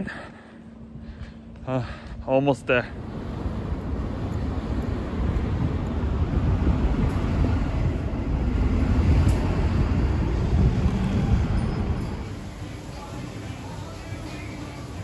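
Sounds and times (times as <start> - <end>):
city street rumble: 0.0 - 15.0
steady hiss: 12.0 - 15.0.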